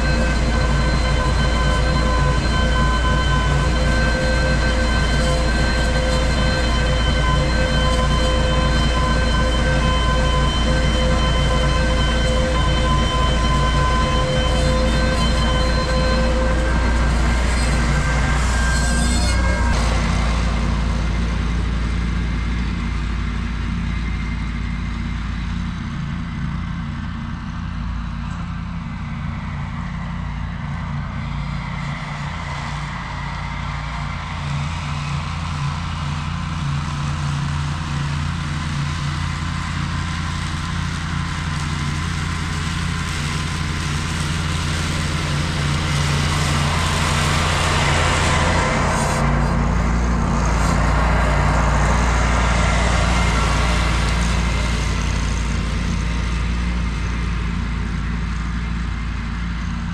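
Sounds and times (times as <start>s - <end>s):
tractor mower cutting grass: 0.0s - 59.9s.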